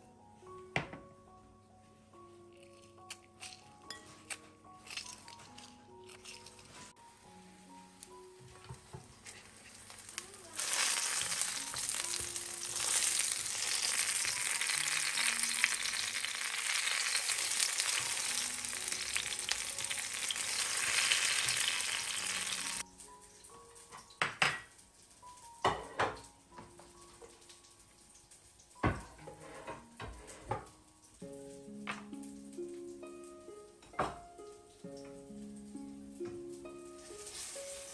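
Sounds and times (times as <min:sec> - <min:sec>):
eggplant sizzling in hot oil: 0:07.6 - 0:29.1, 0:34.4 - 0:37.9.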